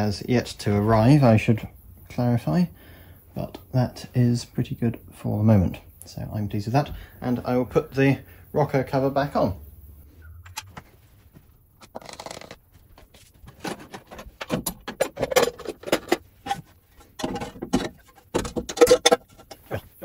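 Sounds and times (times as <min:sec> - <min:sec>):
metallic clinks and rattles: 0:11.8 - 0:12.6, 0:13.6 - 0:19.7.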